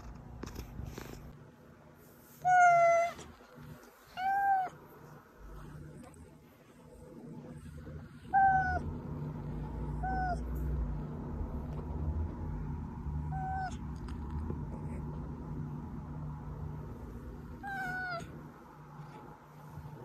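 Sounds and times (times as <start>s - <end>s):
cat meowing: 2.4s - 3.4s, 4.1s - 4.8s, 8.3s - 8.8s, 13.3s - 13.8s, 17.6s - 18.3s.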